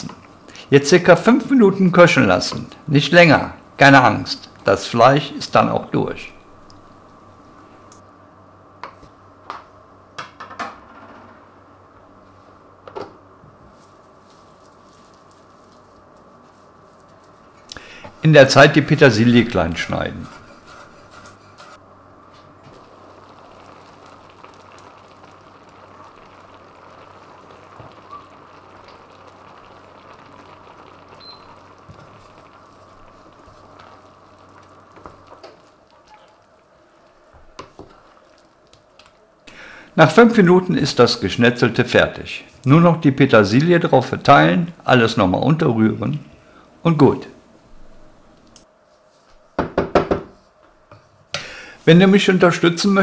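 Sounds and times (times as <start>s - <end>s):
condensation dripping: 0.0s - 8.0s, 13.7s - 20.7s, 21.4s - 48.7s
faint steady hum: 0.0s - 53.0s
sauce bubbling in a pan: 13.9s - 18.2s, 22.6s - 40.4s.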